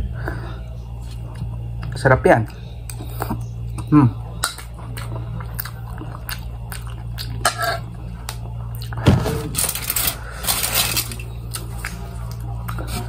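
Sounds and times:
aluminium foil crinkling: 9.4s - 12.0s.

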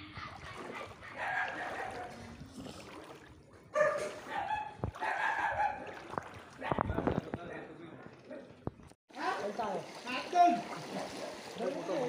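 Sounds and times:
dog barking and yipping: 1.2s - 2.2s, 3.7s - 5.8s.

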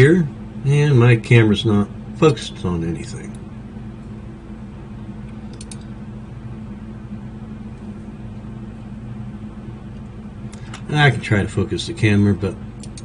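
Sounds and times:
steady low hum: 0.0s - 13.0s
computer mouse clicks: 5.5s - 5.9s, 12.8s - 13.0s.

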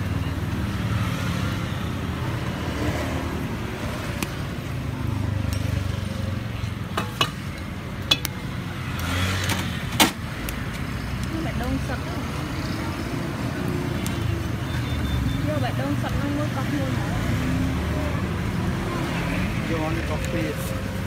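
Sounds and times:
low rumble of street traffic: 0.0s - 21.0s
metal tongs clinking on grill grate: 7.0s - 8.3s.

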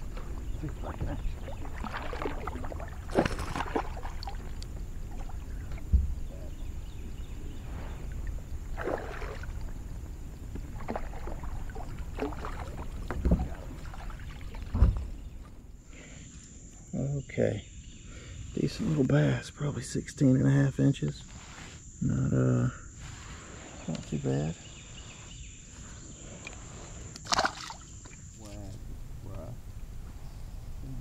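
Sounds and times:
steady low rumble: 0.0s - 3.2s, 28.6s - 31.0s
fish splashing at water surface: 1.3s - 5.4s, 8.7s - 9.7s, 27.2s - 27.9s
dull knock: 5.9s - 6.2s.

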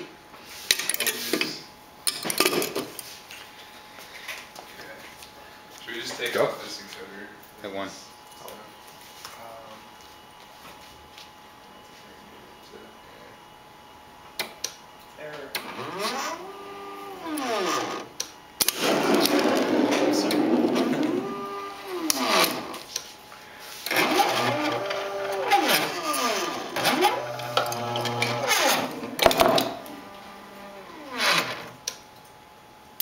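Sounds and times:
motor whine: 15.6s - 22.9s, 23.8s - 31.8s.

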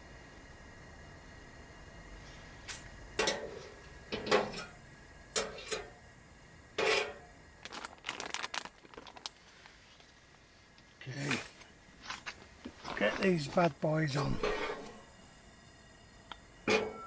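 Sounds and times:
utensils scraping cast iron pan: 3.2s - 4.7s, 5.4s - 6.0s, 6.8s - 7.3s, 14.3s - 15.0s
plastic bag crinkling: 7.6s - 9.8s.

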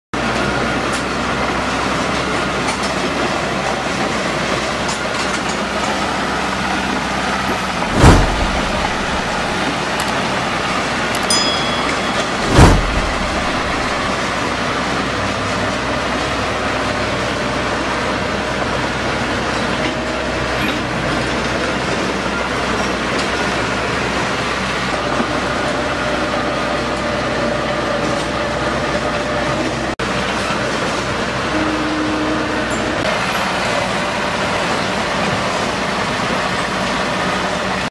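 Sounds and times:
loud thump: 7.8s - 9.7s, 11.8s - 14.2s.

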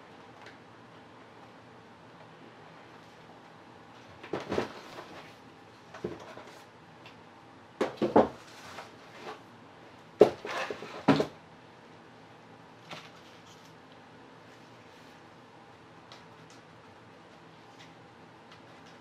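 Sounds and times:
board and cardboard knocking in plastic tub: 7.8s - 8.4s, 10.2s - 11.3s.

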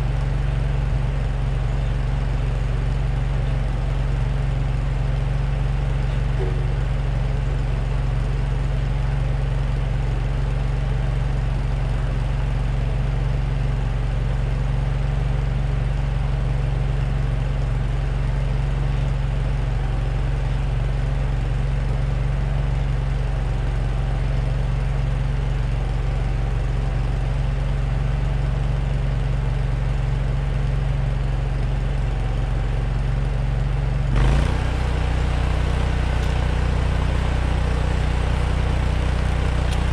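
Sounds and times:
engine idling: 0.0s - 39.9s.

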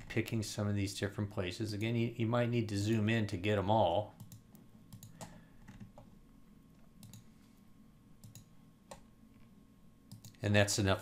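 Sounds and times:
computer mouse clicks: 4.2s - 6.1s, 7.0s - 7.3s, 8.2s - 9.5s, 10.1s - 10.4s.

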